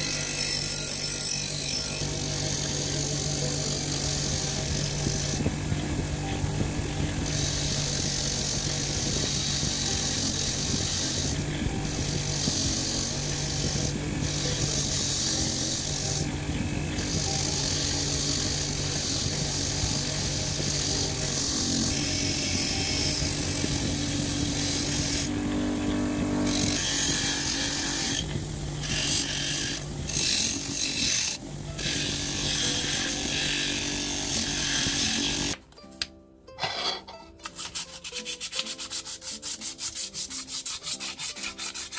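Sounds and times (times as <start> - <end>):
wire wheel motor hum: 0.0 - 35.6
wire bristles scratching metal: 36.6 - 41.9.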